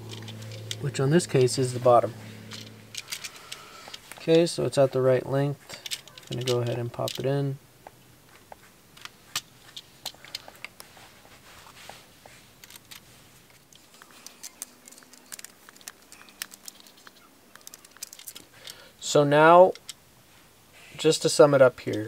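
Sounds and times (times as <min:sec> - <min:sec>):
wires rustling: 0:00.0 - 0:07.6, 0:08.3 - 0:22.0
small clicks and ticks: 0:12.6 - 0:18.8.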